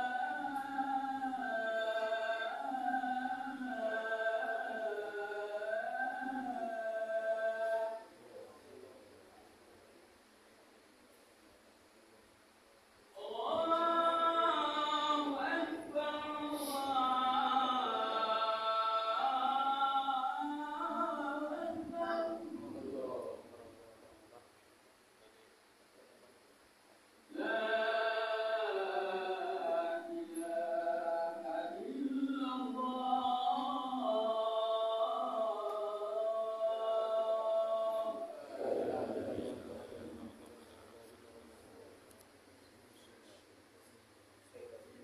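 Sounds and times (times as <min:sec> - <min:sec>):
man chanting call to prayer: 0:00.0 - 0:08.6, 0:13.2 - 0:23.7, 0:27.3 - 0:41.6.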